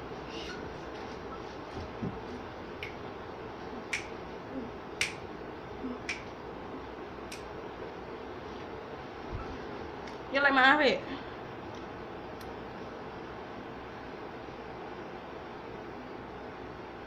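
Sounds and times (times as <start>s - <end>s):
finger snaps: 3.9s - 4.2s, 5.0s - 5.2s, 6.0s - 6.3s, 7.3s - 7.5s.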